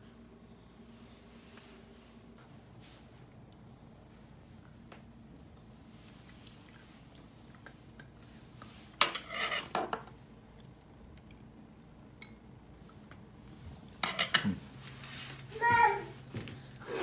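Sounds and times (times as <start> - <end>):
dishes and cutlery clattering: 9.0 - 10.1, 14.0 - 14.6.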